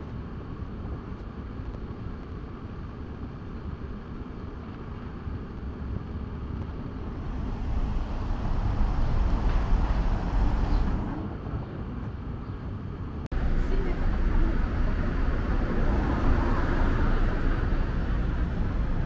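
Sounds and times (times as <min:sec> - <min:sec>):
cars passing rumble: 0:04.0 - 0:12.2, 0:13.0 - 0:19.0.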